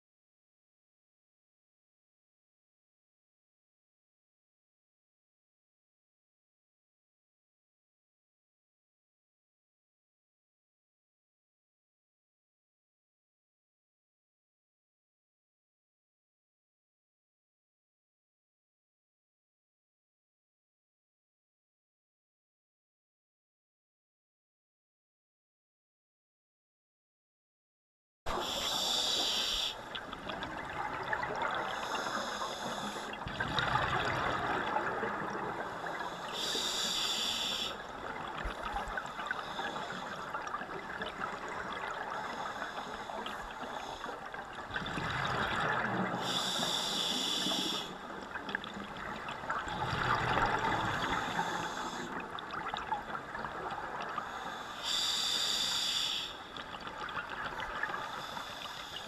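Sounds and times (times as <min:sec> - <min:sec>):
regulator inhalation hiss: 0:28.3 - 0:29.8, 0:31.6 - 0:33.2, 0:36.0 - 0:37.8, 0:46.2 - 0:48.0, 0:51.0 - 0:52.1, 0:54.3 - 0:56.5, 0:58.0 - 0:59.0
exhaled air bubbling: 0:28.3 - 0:55.6.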